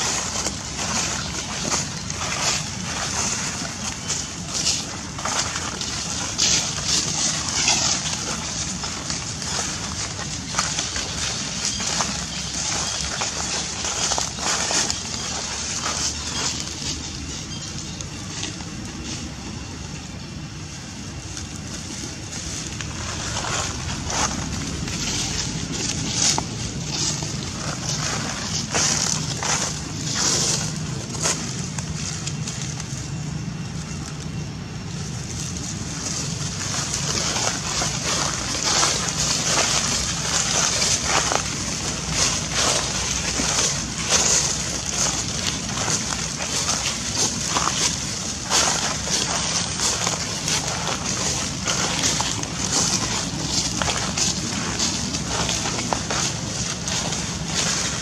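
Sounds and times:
dry leaves crunching underfoot: 0.0s - 58.0s.

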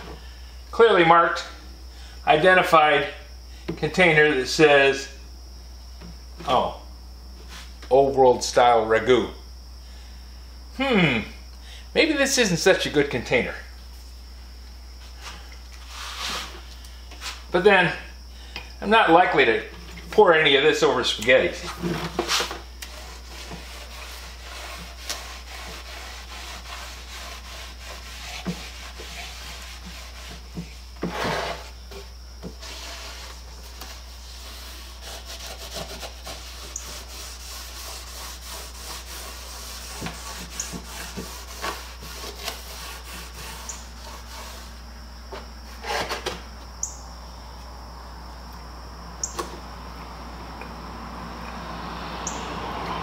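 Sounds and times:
paintbrush swishing on wood: 21.5s - 31.8s, 32.5s - 44.8s.

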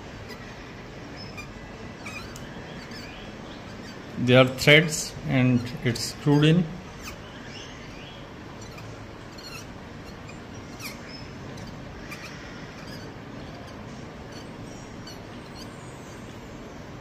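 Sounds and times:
steady background hiss: 0.0s - 17.0s
pliers squeaking and ticking: 1.2s - 4.9s, 8.5s - 16.4s.

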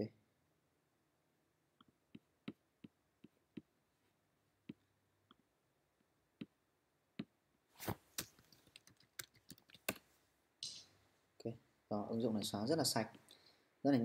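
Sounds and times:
laptop keyboard typing: 8.2s - 10.0s.

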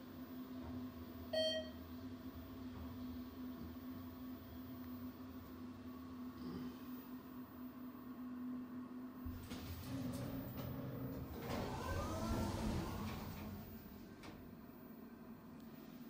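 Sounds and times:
elevator rumble with clicks: 9.2s - 14.8s
elevator hum: 9.2s - 16.0s
sliding doors whirring: 9.3s - 14.6s.

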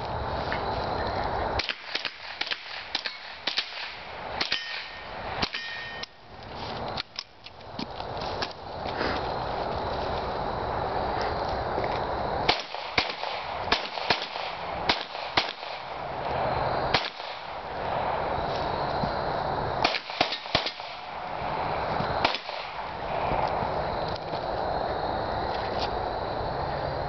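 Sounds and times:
rifle shots cracking: 1.6s - 5.7s, 12.5s - 16.1s, 16.9s - 17.6s, 19.8s - 21.3s, 22.2s - 23.0s.

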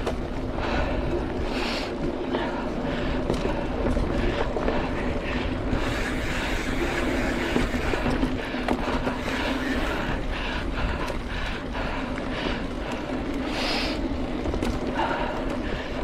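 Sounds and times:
bike clicks and rattles: 0.0s - 16.0s
bike tyres rumbling on dirt: 0.0s - 16.0s
wind on microphone: 2.8s - 13.3s.

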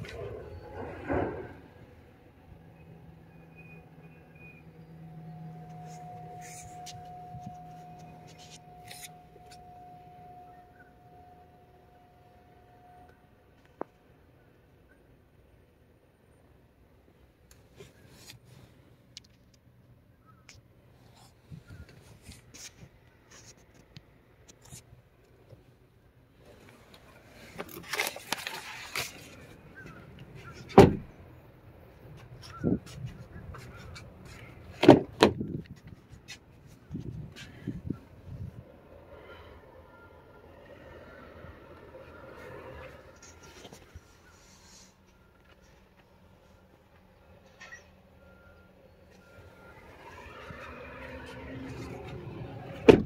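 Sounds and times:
steady high tone: 4.5s - 13.4s
rustling and scraping: 5.7s - 9.7s, 21.0s - 24.9s, 26.4s - 30.8s, 42.8s - 46.1s
rustling and clicking handling noises: 26.5s - 30.8s
truck door shutting thump: 30.8s - 31.1s.

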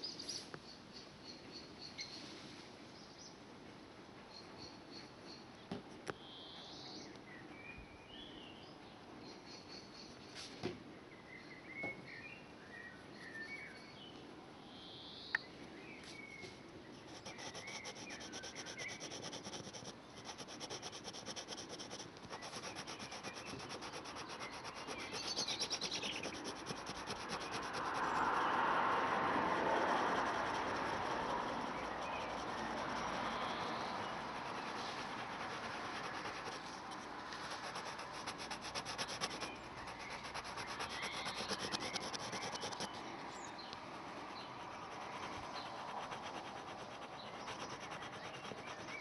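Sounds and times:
birds chirping: 14.8s - 28.6s, 30.0s - 49.0s
broad rushing noise: 23.6s - 48.8s.

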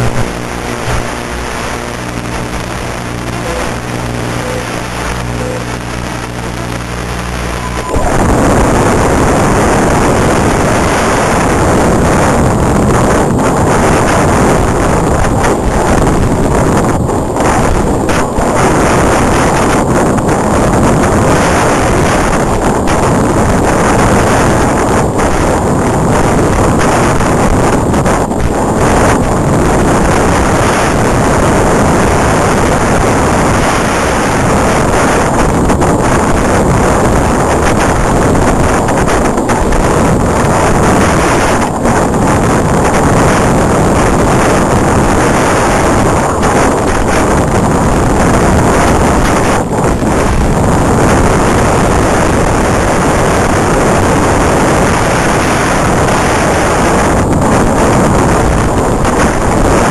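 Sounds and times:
road noise: 0.0s - 26.9s
motor and tyre noise: 0.0s - 59.9s
wind on microphone: 0.0s - 59.9s.

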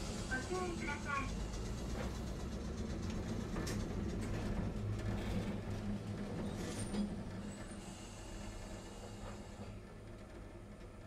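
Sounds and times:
streetcar motor and wheels hum: 0.0s - 11.0s.

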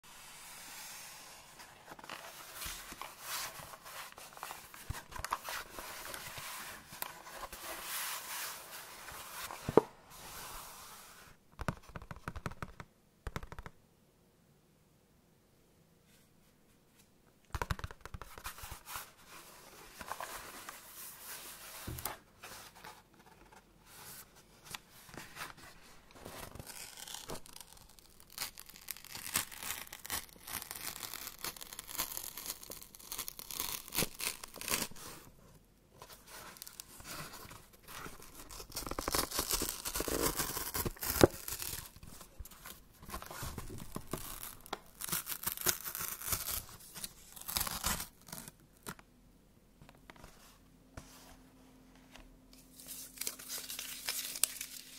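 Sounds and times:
cardboard ripping: 38.3s - 42.0s.

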